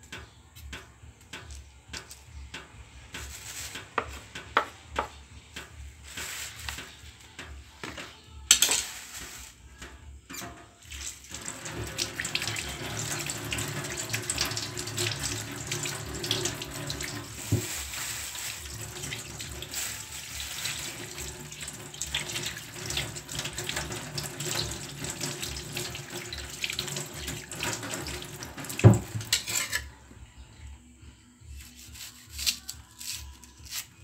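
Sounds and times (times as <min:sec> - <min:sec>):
tap water splashing into sink: 0:10.9 - 0:17.7, 0:20.4 - 0:29.4
potatoes rubbed by hand: 0:12.5 - 0:24.5, 0:31.6 - 0:33.9.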